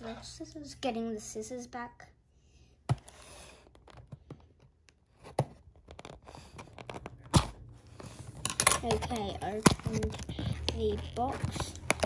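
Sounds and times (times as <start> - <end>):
wrapping scraping and rustling: 5.1 - 12.0.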